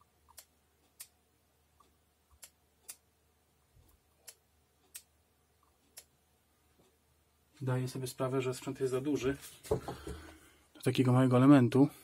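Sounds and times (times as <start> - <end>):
faint sharp clicks: 0.3 - 1.2, 3.8 - 6.1.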